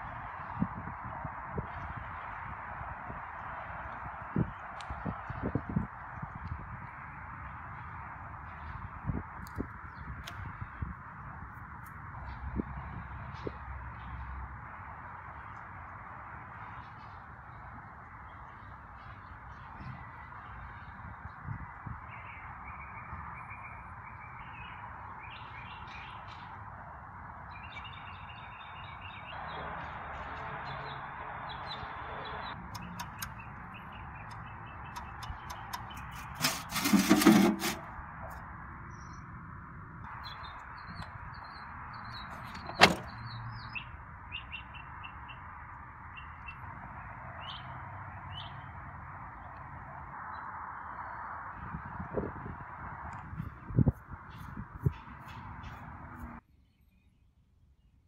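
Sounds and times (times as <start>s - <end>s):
small birds chirping: 30.7s - 36.4s, 40.1s - 48.7s
sharp metallic click: 32.7s - 33.5s, 34.3s - 37.8s
metal drawer scraping rattle: 36.2s - 37.9s, 42.4s - 43.1s.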